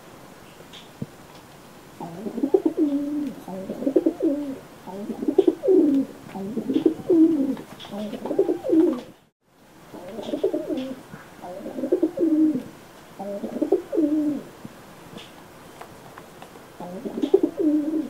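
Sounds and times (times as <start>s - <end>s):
pigeons cooing: 2.0s - 9.2s, 9.9s - 14.6s, 16.8s - 18.0s.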